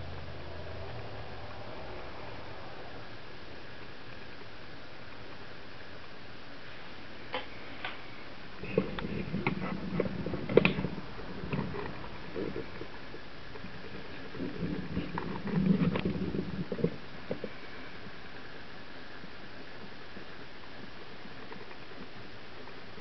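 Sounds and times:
low rumbling: 0.0s - 6.3s, 8.0s - 18.7s
steady hiss: 0.0s - 23.0s
small clicks and knocks: 8.7s - 12.9s.

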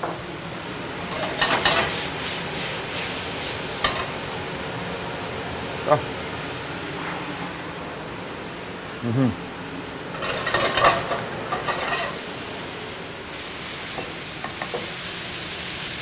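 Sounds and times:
scallops sizzling in a pan: 0.0s - 5.9s, 9.8s - 16.0s
pan scraping and clattering: 1.1s - 2.0s, 3.8s - 4.2s, 10.1s - 12.3s, 13.9s - 15.0s.

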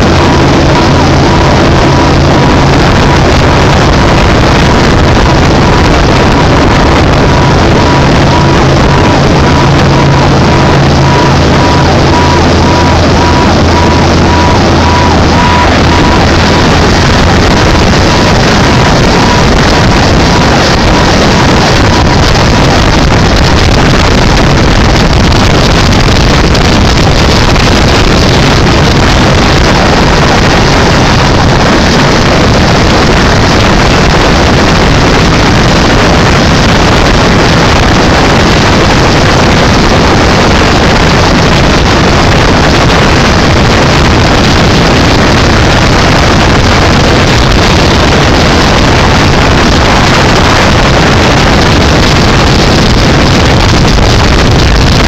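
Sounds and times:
boat engine: 0.0s - 55.0s
water noise: 0.0s - 55.0s
wind on microphone: 0.0s - 55.0s.

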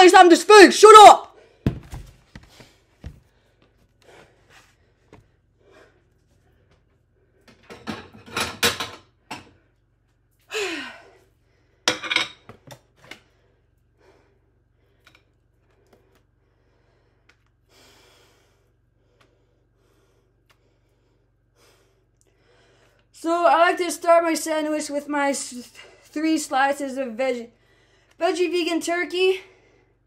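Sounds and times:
dishes clattering on stone countertop: 7.5s - 9.6s, 11.9s - 12.8s.

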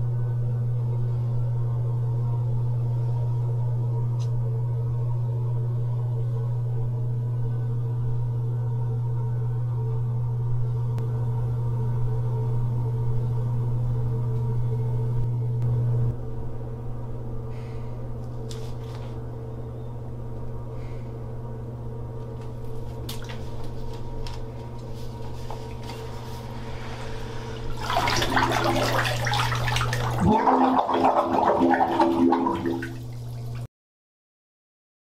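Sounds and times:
steady low hum: 0.0s - 33.7s
water churning and bubbling: 26.8s - 33.7s.

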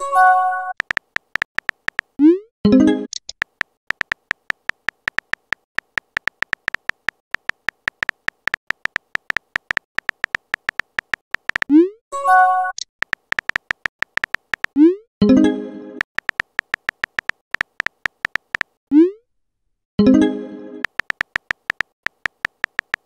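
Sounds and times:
keyboard tap clicks: 0.8s - 2.2s, 3.4s - 11.7s, 13.0s - 14.8s, 16.0s - 18.8s, 20.8s - 23.0s
pop-like message sound: 3.4s - 11.8s, 13.0s - 14.8s, 16.0s - 19.2s, 20.8s - 23.0s.

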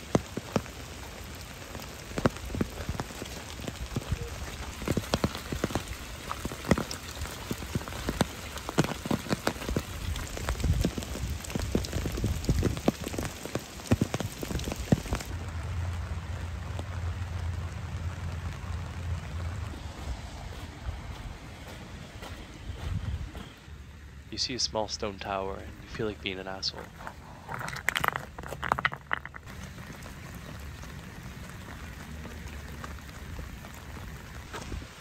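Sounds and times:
raindrops tapping close by: 0.0s - 20.5s, 26.0s - 35.0s
steady rain: 0.0s - 35.0s
low steady rumble: 15.3s - 34.4s.

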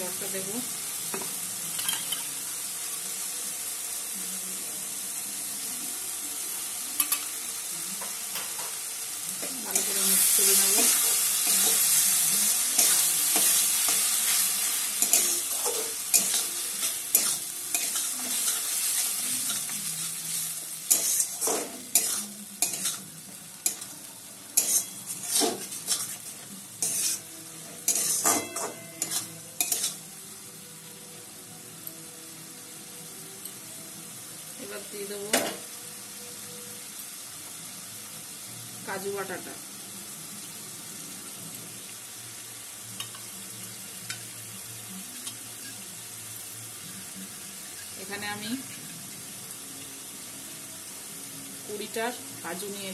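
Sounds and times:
food sizzling in a metal pan: 0.0s - 52.9s
metal spatula scraping pan: 24.6s - 27.2s, 27.9s - 30.0s.

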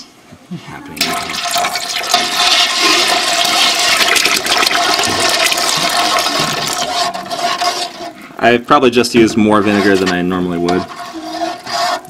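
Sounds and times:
vinegar pouring into milk: 1.0s - 8.0s.

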